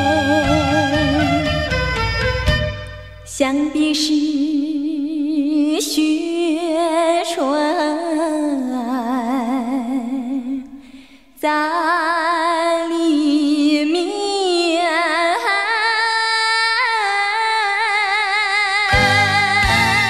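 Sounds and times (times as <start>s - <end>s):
woman singing with vibrato: 0.0s - 1.8s, 3.3s - 20.0s
low accompaniment: 0.0s - 3.3s, 19.0s - 20.0s
sparse accompaniment: 0.0s - 3.3s.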